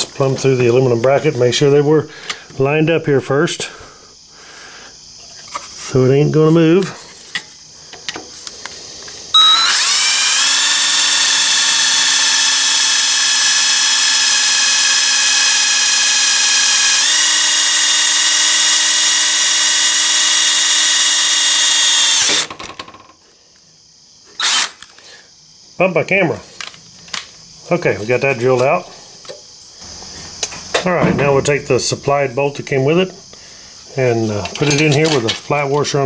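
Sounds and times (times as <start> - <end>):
cordless drill whining: 9.3 - 22.6, 24.4 - 24.9.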